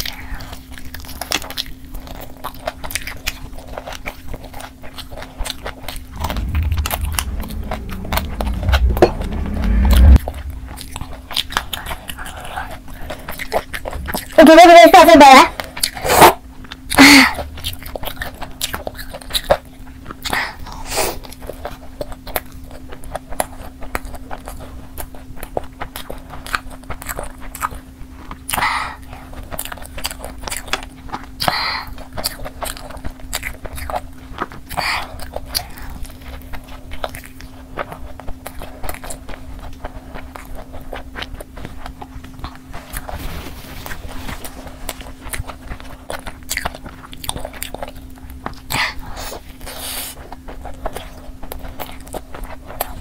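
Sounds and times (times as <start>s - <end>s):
steady low hum: 6.0s - 12.0s
chewing and biting food: 43.8s - 53.0s.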